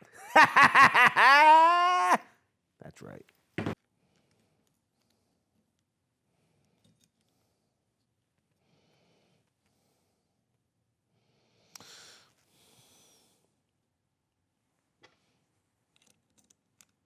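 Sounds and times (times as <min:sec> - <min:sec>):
faint breathing through nose: 0:08.5 - 0:10.5, 0:11.1 - 0:13.6.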